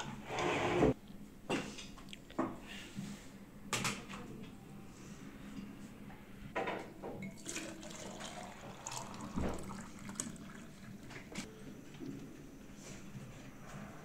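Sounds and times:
drink pouring and splashing: 7.2 - 11.4.

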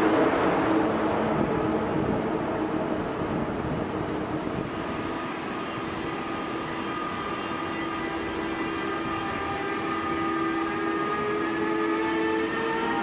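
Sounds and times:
electric locomotive whine: 0.0 - 13.0
low train rumble: 0.0 - 13.0.

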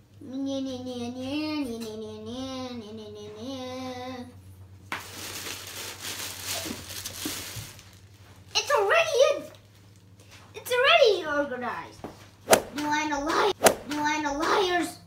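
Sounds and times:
child humming a tune: 0.2 - 4.4
plastic bag crinkling: 5.0 - 8.6.

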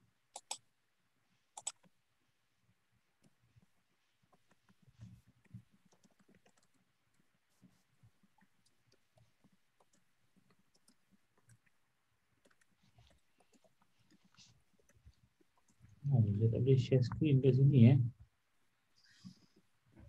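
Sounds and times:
fingers clicking on computer: 0.3 - 0.7, 1.5 - 2.0, 3.2 - 3.7, 4.3 - 15.9.

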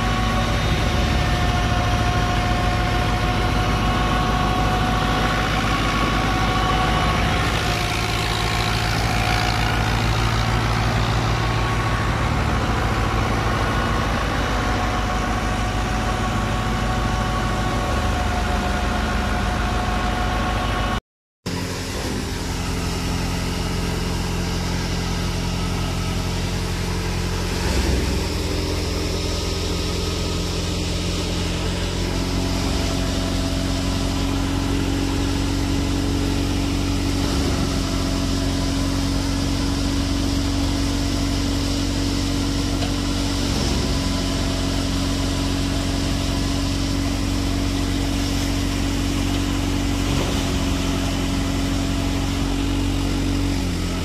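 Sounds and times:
tractor diesel engine: 0.0 - 54.0.

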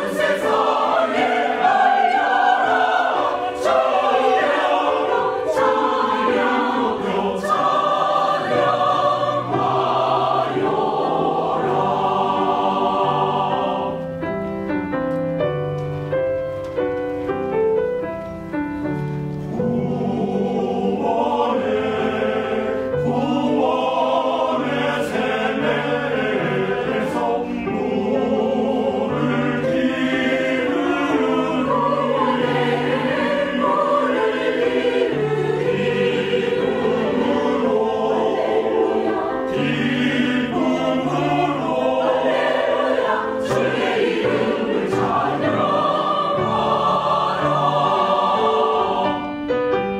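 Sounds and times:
choir singing a hymn: 0.0 - 14.9, 18.8 - 49.9
piano notes: 0.0 - 49.9.

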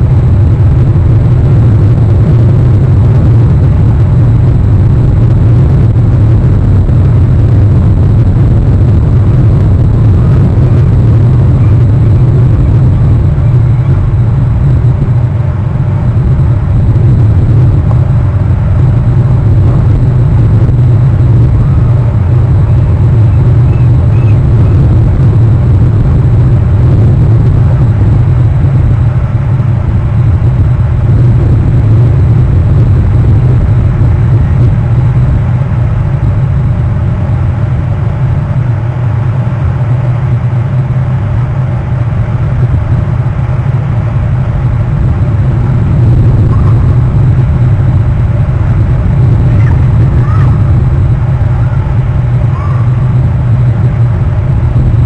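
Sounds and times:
loud low rumble: 0.0 - 55.0.

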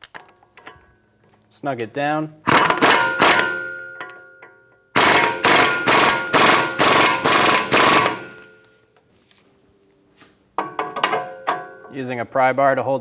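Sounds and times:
impact wrench hammering: 2.4 - 8.6, 10.6 - 11.9.

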